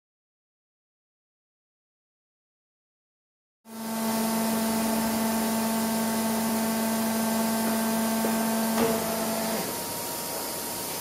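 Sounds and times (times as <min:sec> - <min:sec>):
machine hum with hiss: 0:03.7 - 0:11.0.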